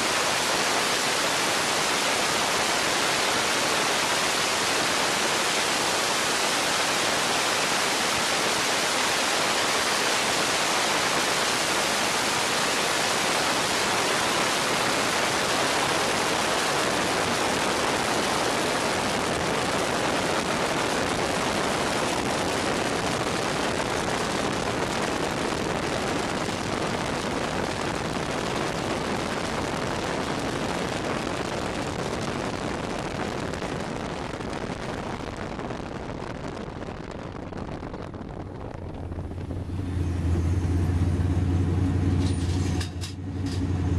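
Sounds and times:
wind rushing: 0.0 - 41.9
race car engine: 38.7 - 43.9.

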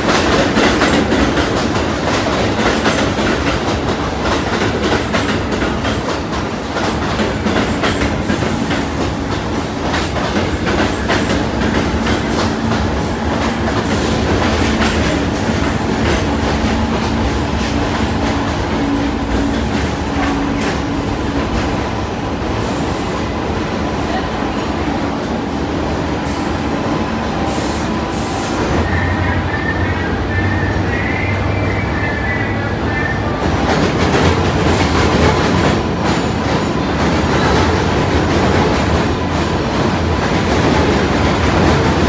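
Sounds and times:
wheels clacking over rail joints: 0.0 - 21.9
subway train rumble: 0.0 - 42.0.

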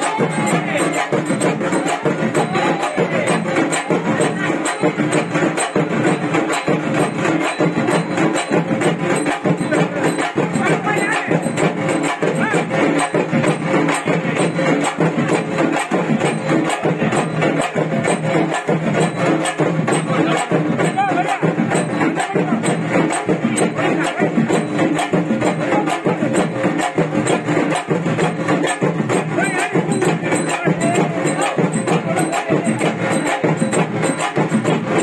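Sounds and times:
clattering jingling percussion: 0.0 - 35.0
festival music with fast drumbeats: 0.0 - 35.0.

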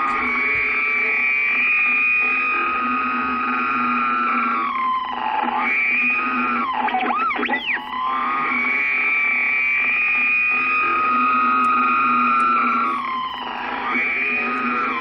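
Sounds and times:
steady high whistle: 0.0 - 4.1, 8.0 - 15.0
distorted radio static: 0.0 - 4.6, 9.8 - 15.0.

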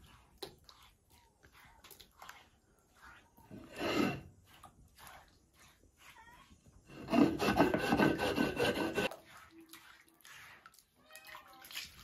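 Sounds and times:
stone roller grinding on stone: 1.5 - 10.6.

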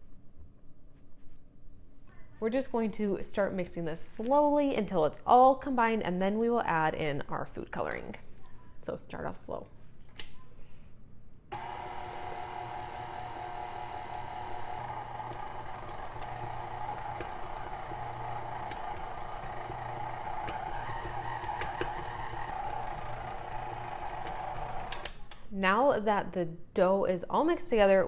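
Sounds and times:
stand mixer running: 11.5 - 25.0.

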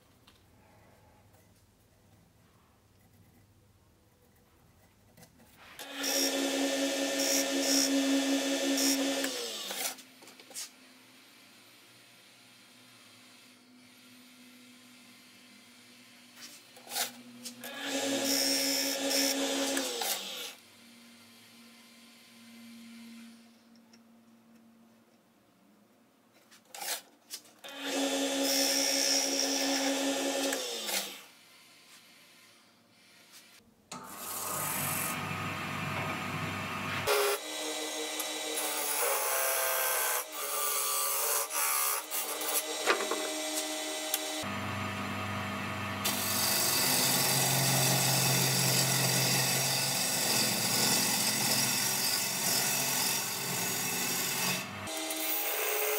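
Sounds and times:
wood lathe running: 5.8 - 9.8, 34.1 - 55.9.

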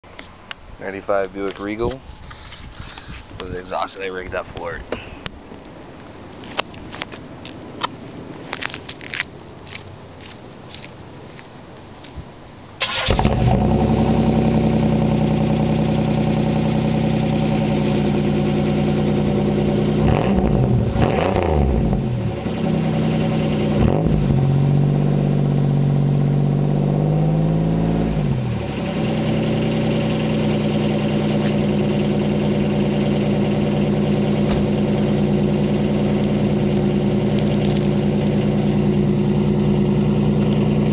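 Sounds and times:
car engine revving: 12.8 - 40.9
car engine starting and idling: 12.8 - 40.9.

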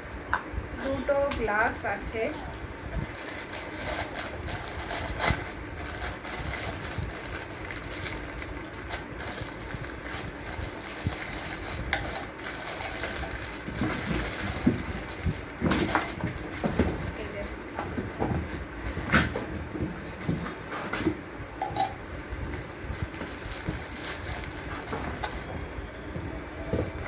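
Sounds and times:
plastic wrapping crinkling: 2.2 - 19.0, 22.9 - 25.6.

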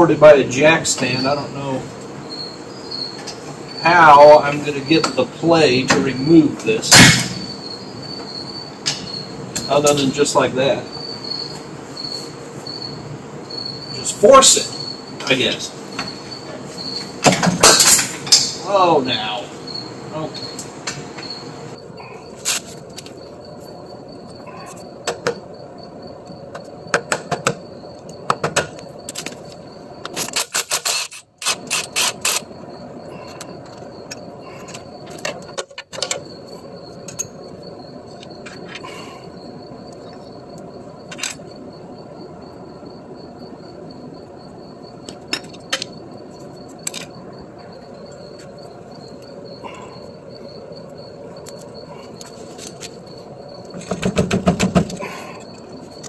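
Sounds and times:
hand tools clanking on metal: 17.2 - 18.7.

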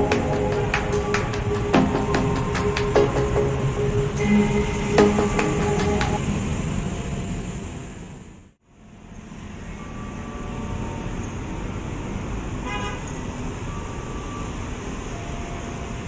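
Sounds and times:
outdoor background noise: 0.0 - 16.0
train horn toot: 12.6 - 13.2.

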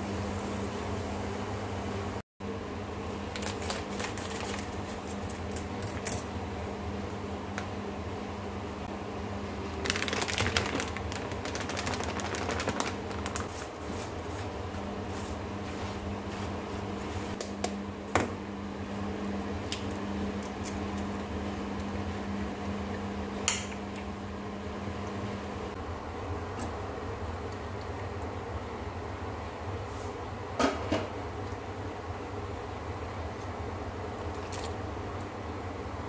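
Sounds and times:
plastic packet crinkling: 3.3 - 4.9, 9.8 - 13.6.

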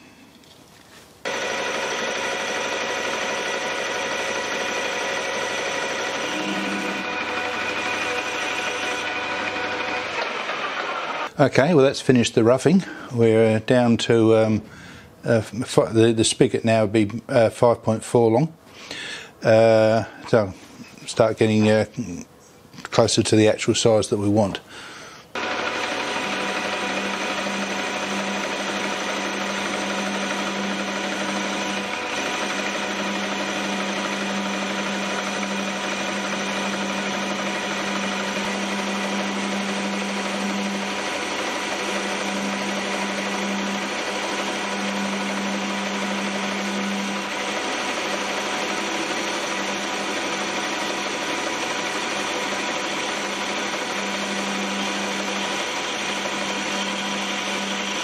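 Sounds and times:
metal lathe motor whine: 1.2 - 11.3, 25.3 - 58.0.

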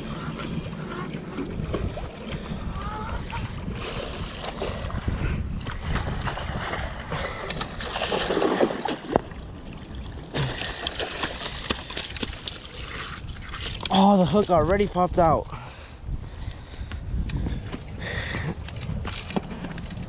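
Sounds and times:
fish splashing in water: 6.0 - 9.2, 10.2 - 13.9.

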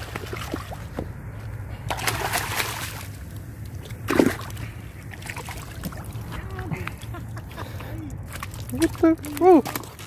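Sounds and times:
steady low hum: 0.0 - 10.0
water sloshing and splashing: 0.0 - 10.0.

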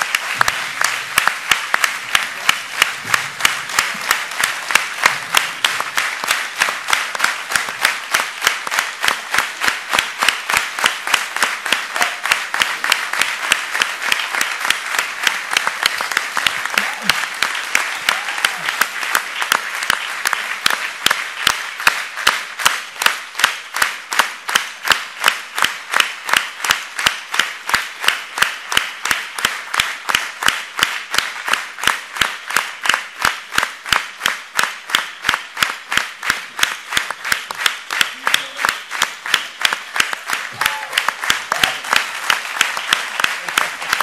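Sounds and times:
audience clapping: 0.0 - 44.0.

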